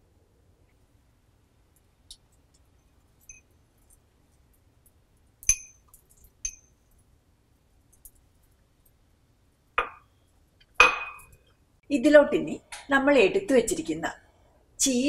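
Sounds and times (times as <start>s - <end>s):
ceramic bowl clinking: 5.4s - 6.7s, 9.8s - 10.1s, 10.8s - 11.4s.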